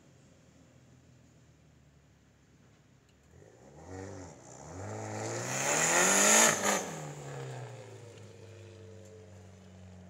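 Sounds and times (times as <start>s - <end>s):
car accelerating past: 3.5s - 8.2s.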